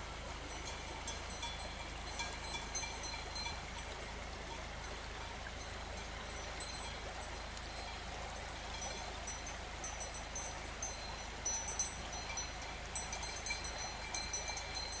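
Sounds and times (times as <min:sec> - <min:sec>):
river running over stones: 0:00.0 - 0:15.0
cowbells clinking: 0:00.5 - 0:03.9, 0:05.2 - 0:07.0, 0:08.7 - 0:15.0.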